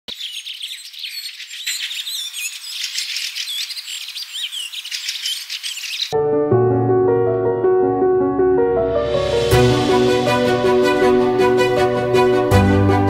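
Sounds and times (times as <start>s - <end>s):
small birds chirping: 0.0s - 6.2s.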